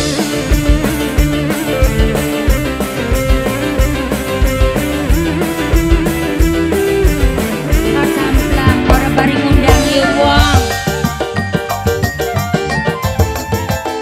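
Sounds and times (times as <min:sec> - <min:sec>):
electric guitar: 0:00.0 - 0:14.0
live band music: 0:00.0 - 0:14.0
steady drum beat: 0:00.0 - 0:14.0.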